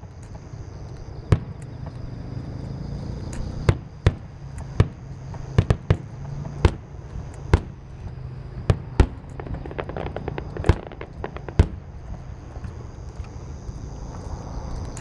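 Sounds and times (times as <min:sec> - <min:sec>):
crackling firework pops: 0:00.0 - 0:02.1, 0:03.3 - 0:13.4, 0:14.8 - 0:15.0
firework booms: 0:01.3 - 0:02.0, 0:03.6 - 0:06.9, 0:07.5 - 0:12.8.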